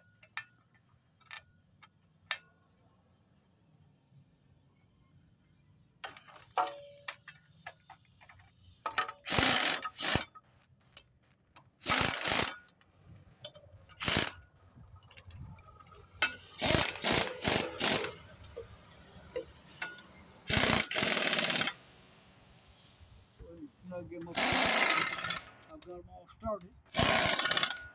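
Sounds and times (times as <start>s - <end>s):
impact wrench bursts: 6.3s - 10.3s, 11.8s - 12.7s, 13.8s - 14.4s, 15.8s - 23.4s, 24.2s - 25.6s, 26.9s - 27.9s.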